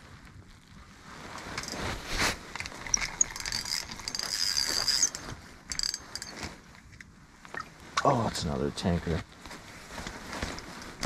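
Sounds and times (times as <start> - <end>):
reel gears clicking: 2.6 - 6.3.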